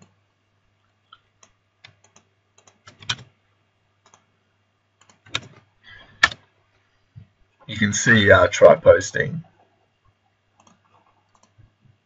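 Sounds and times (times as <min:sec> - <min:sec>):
computer keyboard key presses: 0:01.4 - 0:03.3, 0:05.0 - 0:05.6, 0:06.2 - 0:06.4.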